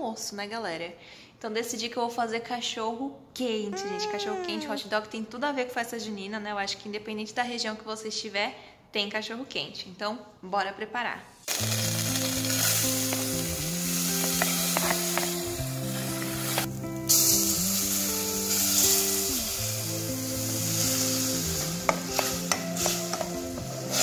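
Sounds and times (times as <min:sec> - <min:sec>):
onion sizzling in a pan: 0:11.5 - 0:24.0.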